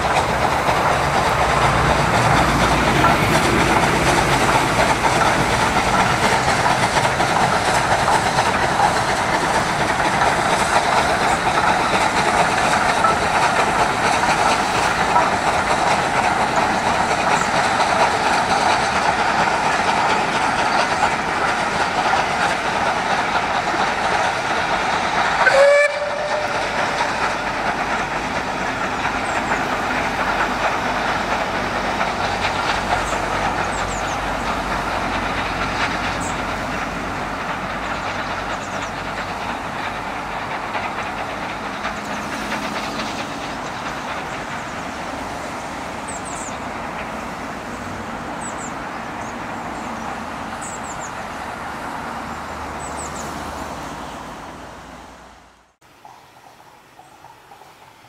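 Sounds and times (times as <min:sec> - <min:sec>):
steam locomotive exhaust and running: 0:00.0 - 0:58.0
steam whistle toot: 0:25.4 - 0:26.8.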